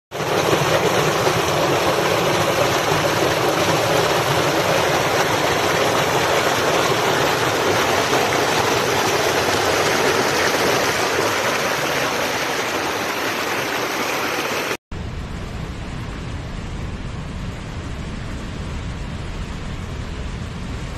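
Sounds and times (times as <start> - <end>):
waterfall rushing: 0.2 - 14.8.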